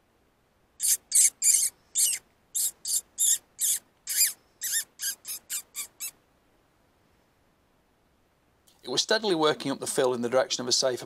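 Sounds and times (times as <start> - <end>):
high-pitched squeaks of fox call: 0.8 - 6.2.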